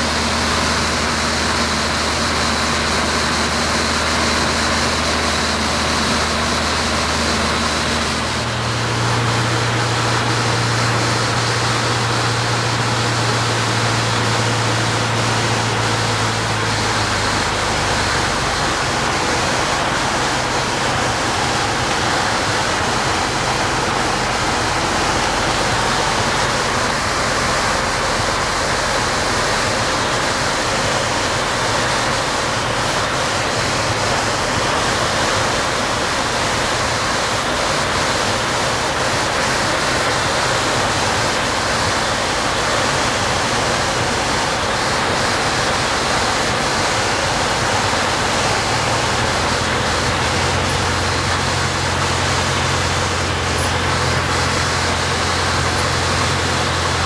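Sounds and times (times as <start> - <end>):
aircraft cabin engine and propeller noise: 0.0 - 57.0.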